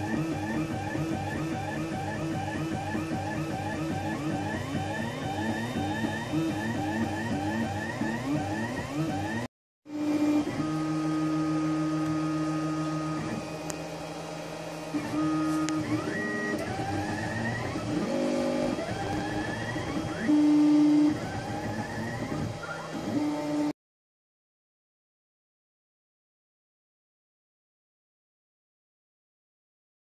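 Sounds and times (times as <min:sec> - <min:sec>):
printer stepper motors whining: 0:00.0 - 0:23.8.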